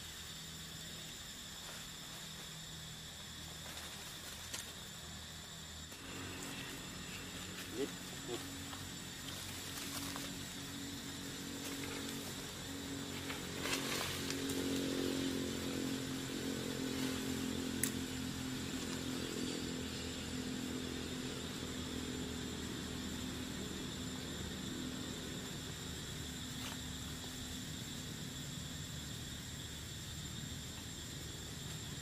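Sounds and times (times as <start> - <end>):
small engine running: 5.9 - 25.0.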